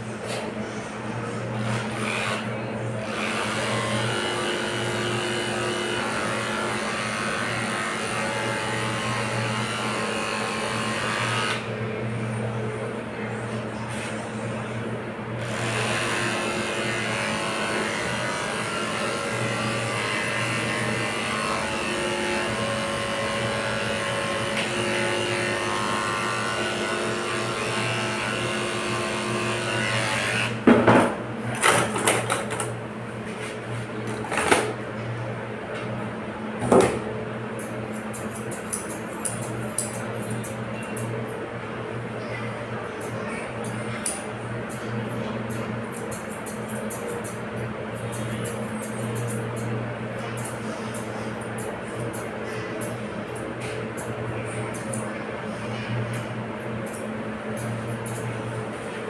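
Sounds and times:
electric clippers humming: 1.6s - 11.7s, 15.4s - 30.6s.

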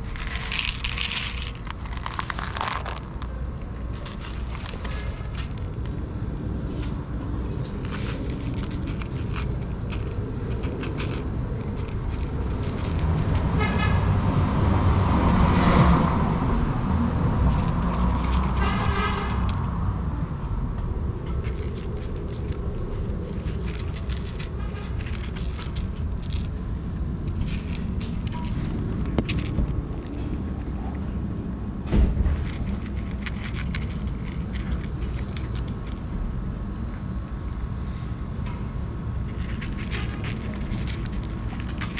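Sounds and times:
cat chewing dry kibble: 0.0s - 14.0s, 17.3s - 19.8s, 21.2s - 31.4s, 32.2s - 36.2s, 39.2s - 41.9s
vehicle passing close: 0.0s - 36.3s
low traffic rumble: 0.0s - 41.9s.

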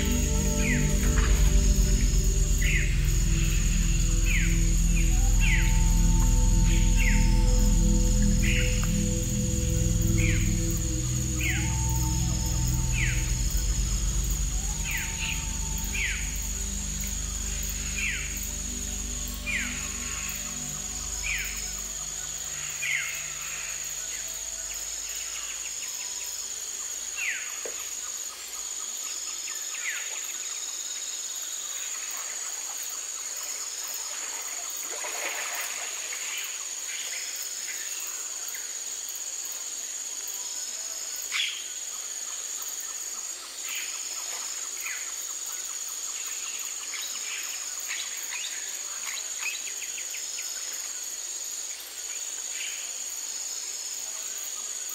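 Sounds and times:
low held tone: 0.0s - 23.8s
insects droning: 0.0s - 54.9s
pulsing insect chirp: 0.0s - 54.9s.

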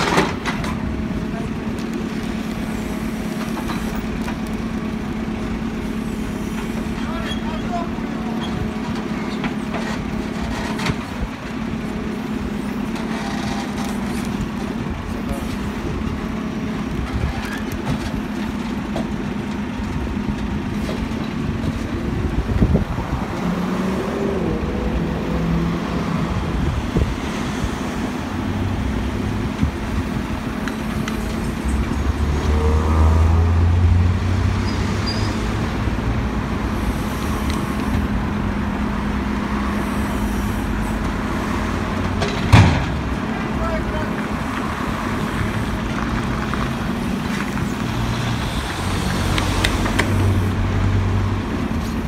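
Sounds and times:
hydraulic arm digging soil: 0.0s - 22.0s
diesel engine running: 0.0s - 52.0s
street traffic: 0.0s - 52.0s.

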